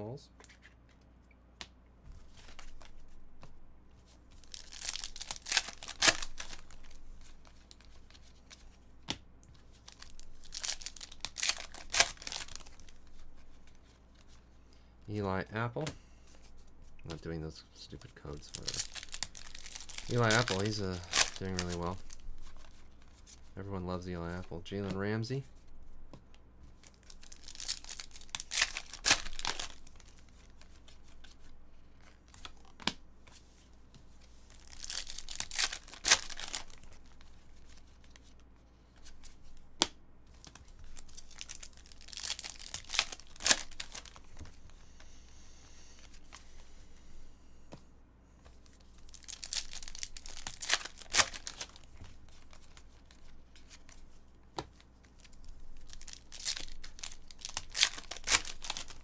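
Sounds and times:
foil wrappers tearing and crinkling: 4.4 - 7.9, 9.9 - 13.2, 18.3 - 22.7, 26.8 - 30.2, 34.5 - 37.2, 40.8 - 44.4, 49.0 - 53.9, 55.2 - 59.0.

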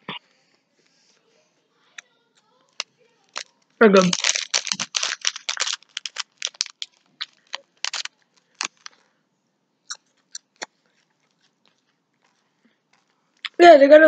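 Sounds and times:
crunchy chewing: 2.7 - 9.0.

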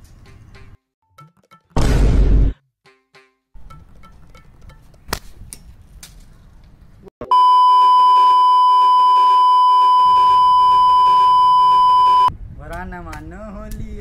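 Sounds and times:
censor bleep tone: 7.2 - 12.3.

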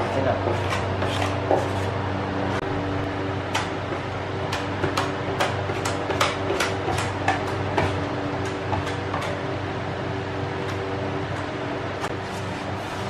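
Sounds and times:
steady low hum: 0.0 - 13.0
putty knife scraping: 0.5 - 1.9, 12.0 - 13.0.

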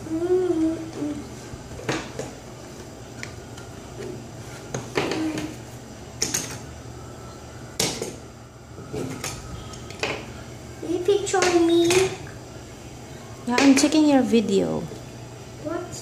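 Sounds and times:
crayons clicking and tapping: 11.3 - 12.2.

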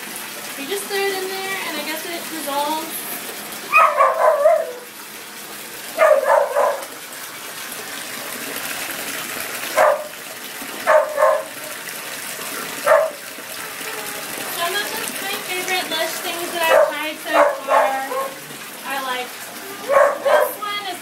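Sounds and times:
small dog barking: 3.7 - 4.9, 6.0 - 6.9, 9.8 - 10.1, 10.8 - 11.6, 12.8 - 13.2, 16.6 - 18.4, 19.8 - 20.6.

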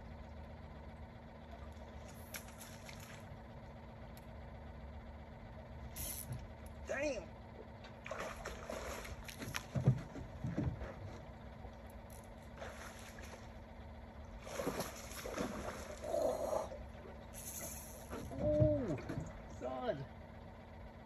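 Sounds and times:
water lapping against boat hull: 7.7 - 19.7.

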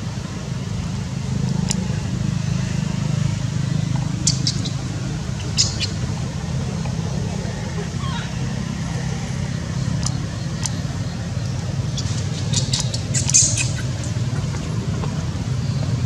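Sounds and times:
steady low hum: 0.0 - 16.0
baby monkey squeaks: 12.0 - 13.9.

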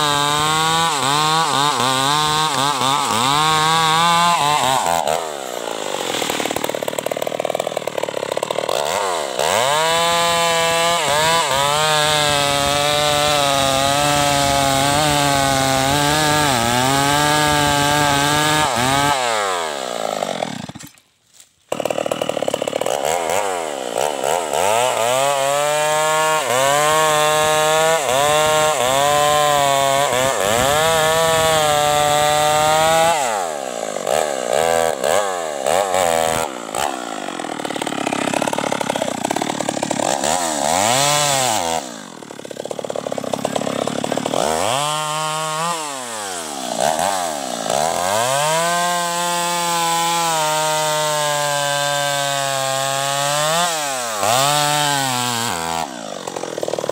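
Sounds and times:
chainsaw revving: 0.0 - 21.0, 21.7 - 56.9.

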